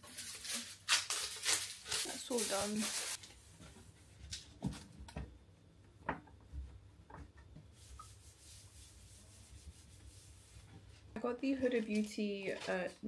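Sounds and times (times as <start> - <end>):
soft rubbing hiss of wiping: 7.6 - 11.2.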